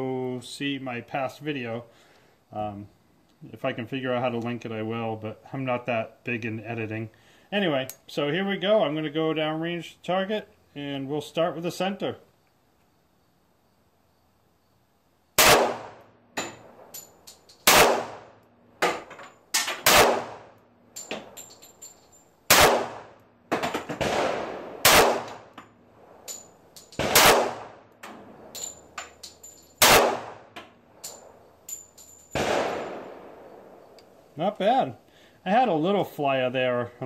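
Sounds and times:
pistol shots: 0:15.4 - 0:16.8, 0:17.6 - 0:19.0, 0:19.6 - 0:20.6, 0:22.5 - 0:25.6, 0:27.0 - 0:27.9, 0:29.8 - 0:30.6, 0:32.3 - 0:33.8
faint cracks and clinks: 0:16.4 - 0:17.7, 0:20.9 - 0:22.4, 0:25.3 - 0:27.0, 0:27.9 - 0:29.8, 0:30.6 - 0:32.4.

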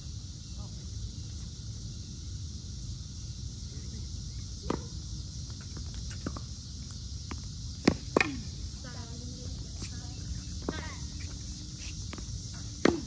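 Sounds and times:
outdoor background hiss: 0:00.0 - 0:13.0
tennis ball knock: 0:12.7 - 0:13.0.

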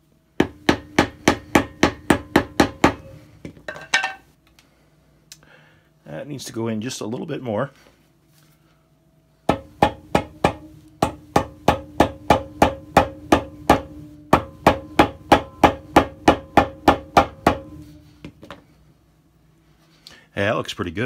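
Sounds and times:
hammer tapping on ringing steel: 0:09.5 - 0:18.0.

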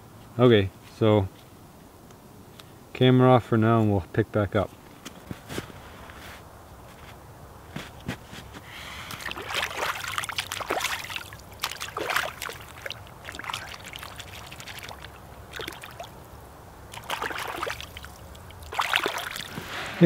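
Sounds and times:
water splashing and trickling: 0:09.0 - 0:20.0.

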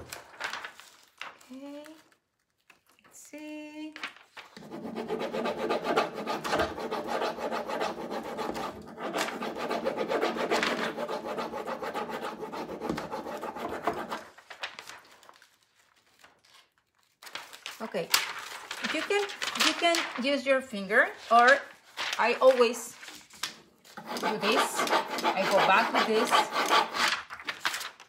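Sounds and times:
rubbing on plastic sheet: 0:04.4 - 0:16.4, 0:17.6 - 0:20.4, 0:21.1 - 0:27.9.

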